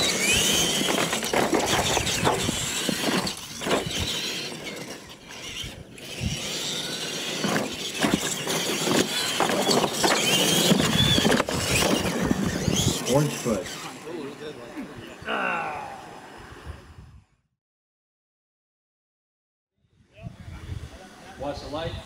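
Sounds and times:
tyres on dirt: 0.0s - 16.4s
electric motors and gears whining: 0.0s - 17.4s.

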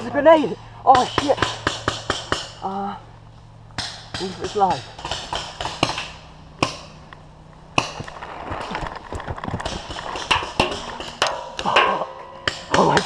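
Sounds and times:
rustling in dry leaves: 0.0s - 13.0s
paintball markers firing: 3.8s - 6.9s.

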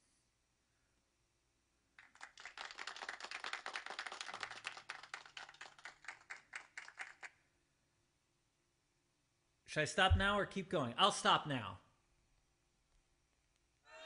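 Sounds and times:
recorded applause from phone: 2.0s - 7.5s.

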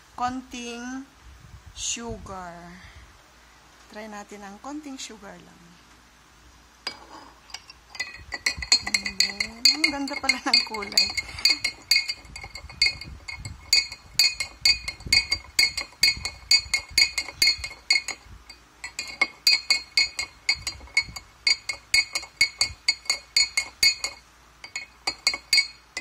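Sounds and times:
spoon clinking in glass jar: 6.9s - 26.0s.

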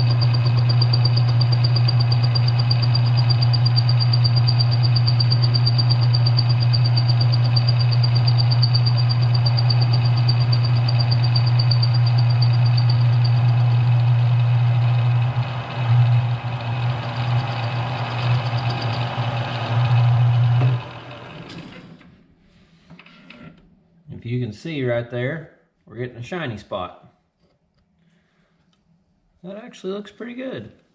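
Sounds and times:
lathe motor humming and whining: 0.0s - 21.9s.

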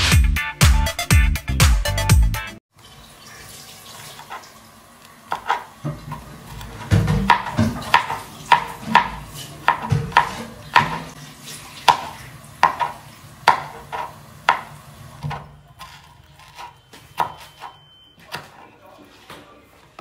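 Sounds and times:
knife chopping on cutting board: 5.3s - 11.1s, 11.8s - 18.6s.

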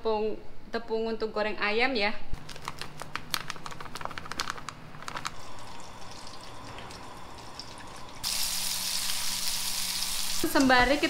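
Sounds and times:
plastic bag crinkling: 2.3s - 5.4s
hot oil sizzling: 5.4s - 11.0s.

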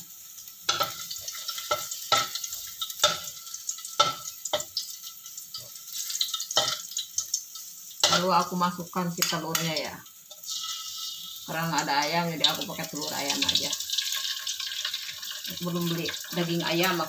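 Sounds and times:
garlic sizzling in oil: 0.0s - 17.0s
spatula knocking against wok: 4.0s - 4.7s.

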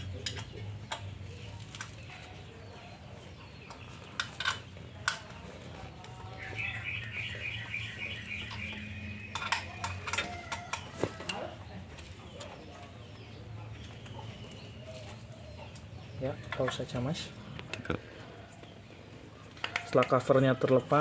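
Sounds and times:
bird trilling: 6.4s - 9.4s.

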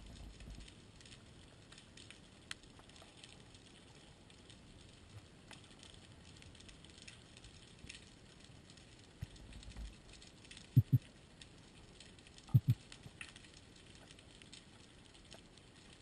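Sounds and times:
faint underwater crackle: 0.0s - 16.0s
sharp clicks: 10.8s - 11.0s, 12.5s - 12.8s.

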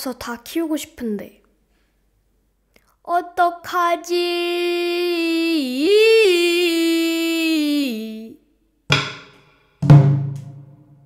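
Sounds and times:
person singing a long note: 4.4s - 8.4s.

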